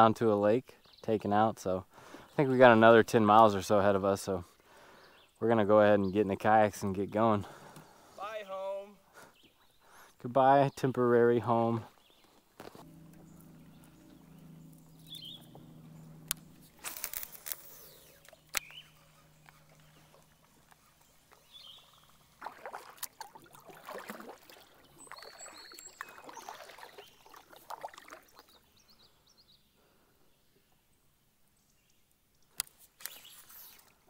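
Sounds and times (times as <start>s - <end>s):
kayak swishing on water: 11.6s - 28.8s
faint bird chirps: 11.9s - 22.4s, 24.8s - 27.5s
kayak knocking: 12.6s - 25.6s.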